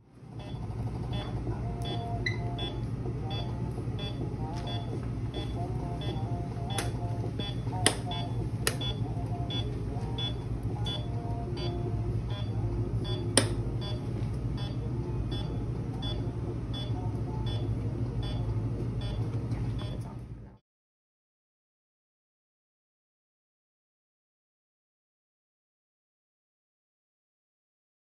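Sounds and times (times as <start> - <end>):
low equipment hum: 0.0 - 20.6
patient monitor beeping: 0.3 - 20.2
sharp click: 13.4 - 13.6.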